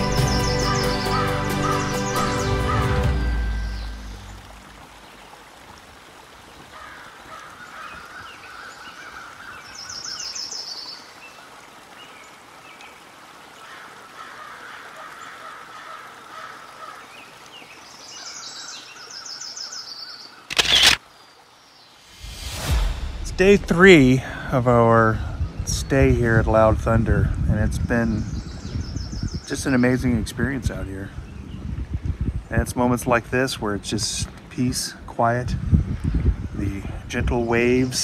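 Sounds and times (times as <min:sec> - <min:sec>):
birds calling: 0:00.0 - 0:05.4, 0:13.6 - 0:22.4
steady outdoor hiss: 0:00.0 - 0:38.0
short loud burst of noise: 0:22.1 - 0:24.1.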